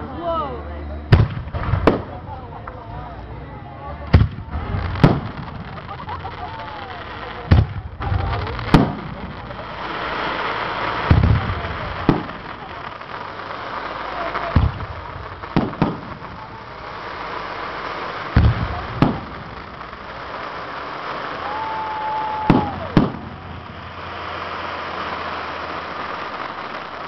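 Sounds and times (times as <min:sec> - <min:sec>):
fireworks booming: 0:01.1 - 0:02.8, 0:04.0 - 0:27.0
high firework whistle: 0:08.1 - 0:27.0.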